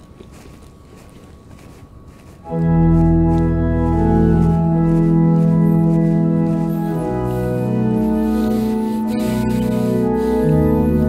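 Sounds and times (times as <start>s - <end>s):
organ playing held chords: 2.5s - 11.0s.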